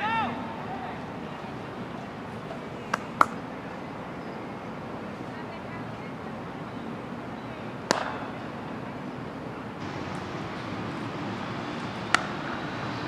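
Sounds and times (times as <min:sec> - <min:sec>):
outdoor background noise: 0:00.0 - 0:13.0
cricket bat hitting ball: 0:07.9 - 0:08.2, 0:12.1 - 0:12.4
sharp crack: 0:07.9 - 0:08.3, 0:12.1 - 0:12.6.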